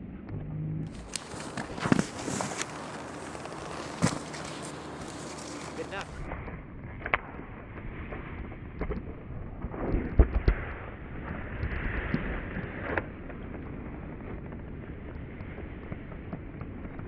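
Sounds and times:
wind rumbling on microphone: 0:00.0 - 0:17.0.

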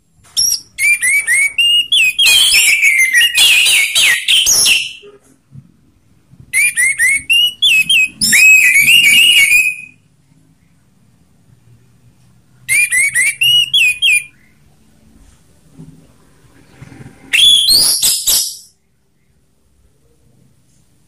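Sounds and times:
thrush whistled song: 0:00.4 - 0:05.1, 0:06.5 - 0:10.1, 0:12.7 - 0:14.6, 0:17.3 - 0:18.8.

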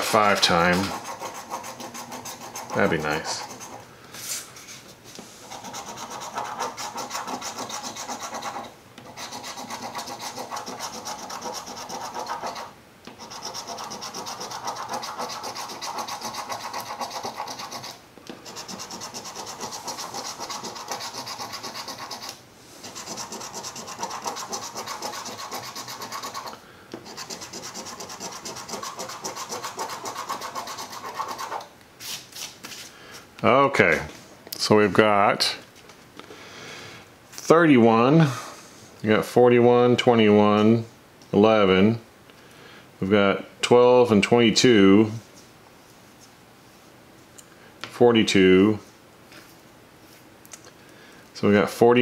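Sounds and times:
coin scraping scratch card: 0:00.4 - 0:03.8, 0:05.4 - 0:31.7.

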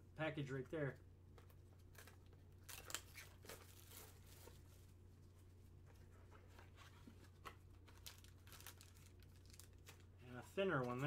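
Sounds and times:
low steady hum: 0:00.0 - 0:11.0
rustling and scraping of cardboard: 0:03.1 - 0:08.1.

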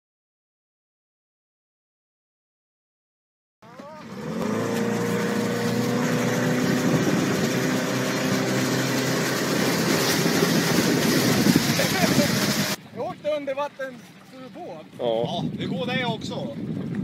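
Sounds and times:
churning wake water: 0:03.6 - 0:17.0
outboard motor running: 0:03.6 - 0:17.0.

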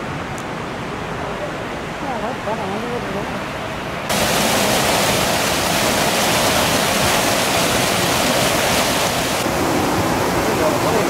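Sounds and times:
waterfall pouring into a pool: 0:04.1 - 0:11.0.

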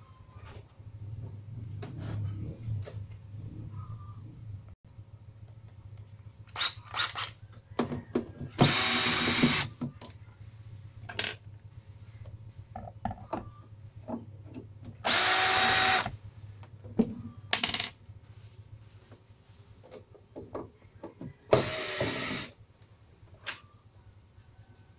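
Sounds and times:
cordless drill whining: 0:08.6 - 0:09.7, 0:15.0 - 0:16.1, 0:21.5 - 0:22.6.

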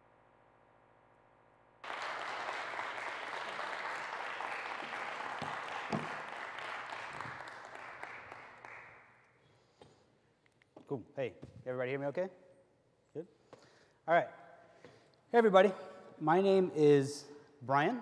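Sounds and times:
audience applauding: 0:01.8 - 0:09.2.

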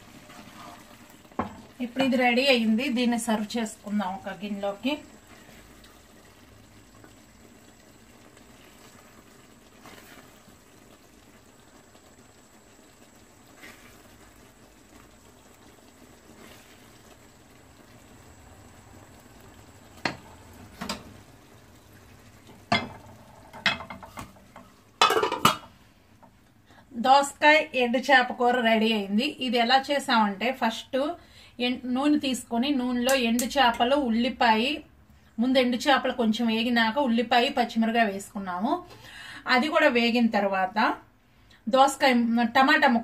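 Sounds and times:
simmering hiss: 0:00.0 - 0:32.2.

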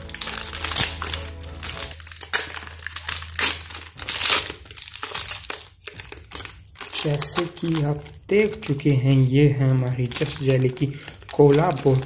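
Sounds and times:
low background music: 0:00.0 - 0:12.0
plastic wrapper crinkling: 0:00.0 - 0:12.0.

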